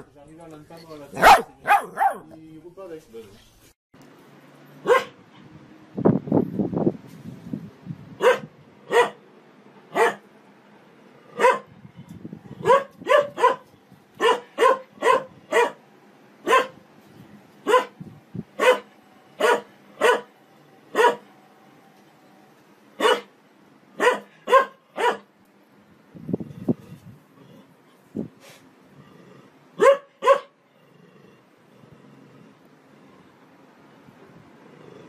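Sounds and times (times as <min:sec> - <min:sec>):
dog barking: 0:01.2 - 0:02.3, 0:04.8 - 0:05.2, 0:08.2 - 0:09.2, 0:09.9 - 0:10.2, 0:11.4 - 0:11.7, 0:12.6 - 0:15.8, 0:16.4 - 0:16.8, 0:17.6 - 0:18.0, 0:18.6 - 0:20.3, 0:20.9 - 0:21.2, 0:23.0 - 0:23.3, 0:24.0 - 0:25.3, 0:29.8 - 0:30.6.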